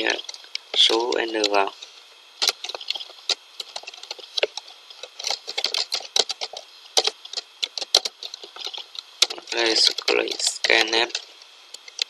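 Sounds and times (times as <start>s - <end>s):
keyboard typing clicks: 2.4s - 10.8s.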